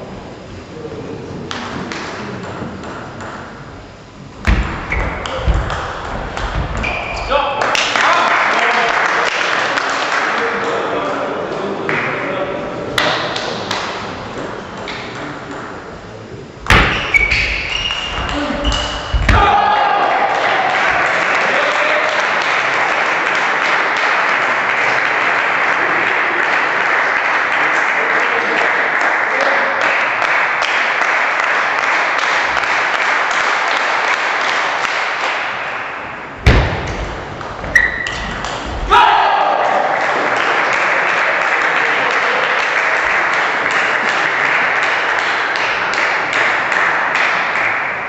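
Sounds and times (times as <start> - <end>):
loud thump: 4.4 - 7.3, 16.7 - 17.1, 18.9 - 19.6, 36.4 - 37.8
crowd applause: 5.2 - 11.2, 19.3 - 36.0, 38.3 - 48.0.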